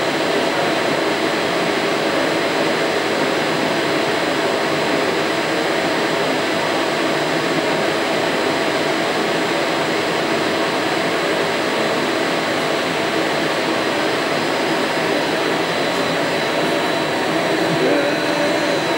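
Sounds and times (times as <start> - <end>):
rushing machine noise: 14.6 - 18.9
thin high whines: 15.6 - 18.9.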